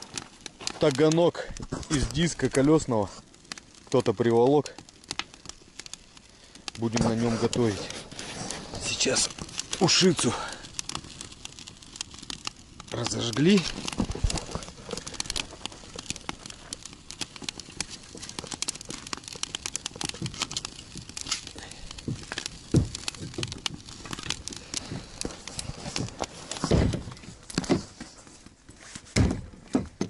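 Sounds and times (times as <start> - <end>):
wood fire crackling: 0.0 - 30.0.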